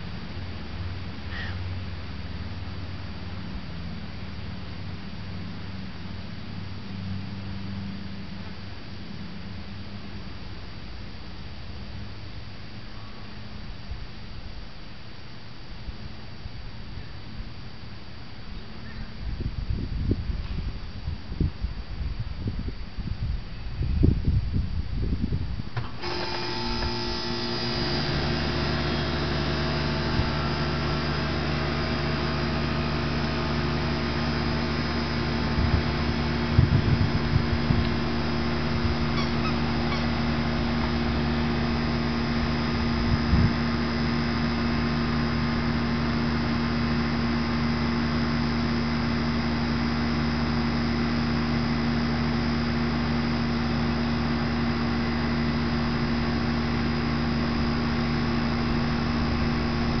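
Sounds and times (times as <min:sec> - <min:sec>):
steady hum of held tones: 0:00.0 - 1:00.0.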